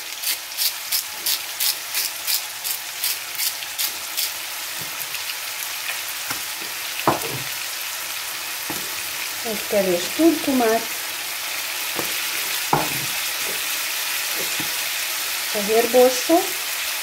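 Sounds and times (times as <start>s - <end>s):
meat sizzling in a frying pan: 0.0s - 17.0s
knock: 7.1s - 7.5s, 12.0s - 13.1s.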